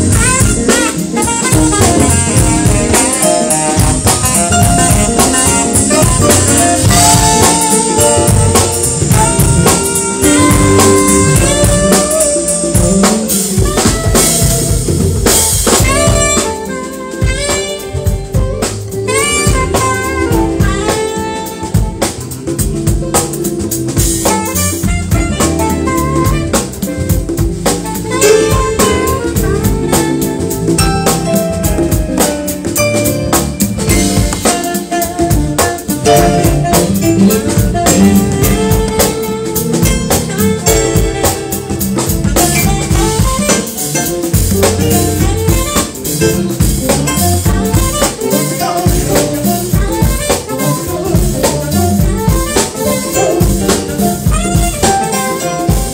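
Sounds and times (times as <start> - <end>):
bass: 0.0 - 55.9
drum kit: 0.0 - 55.9
electric guitar: 0.0 - 55.9
saxophone: 0.0 - 55.9.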